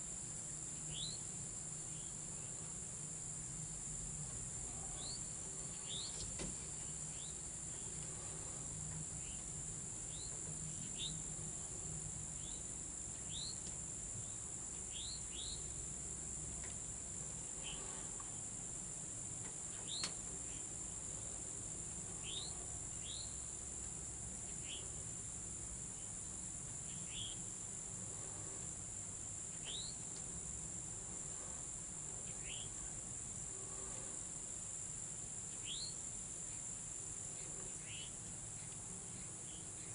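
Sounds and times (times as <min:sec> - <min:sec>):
insect chorus drone: 0:00.0 - 0:39.9
bird chirping: 0:00.9 - 0:01.2, 0:04.9 - 0:08.0, 0:14.9 - 0:15.7, 0:29.5 - 0:30.0, 0:35.5 - 0:36.6, 0:37.4 - 0:39.9.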